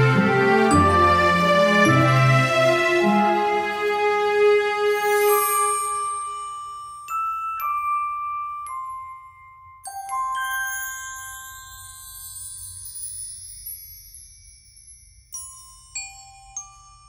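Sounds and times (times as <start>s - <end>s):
bell-like mallet music: 0.0s - 4.2s, 4.8s - 17.0s.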